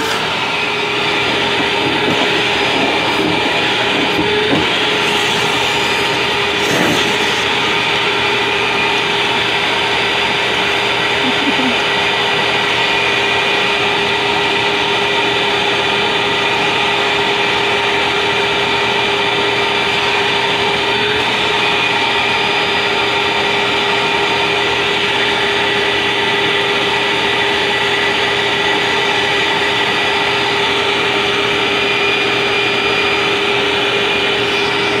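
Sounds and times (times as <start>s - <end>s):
vacuum cleaner running: 0.0s - 35.0s.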